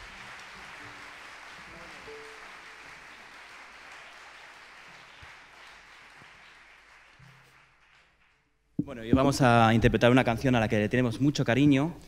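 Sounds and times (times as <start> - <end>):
audience applause: 0.0 - 8.4.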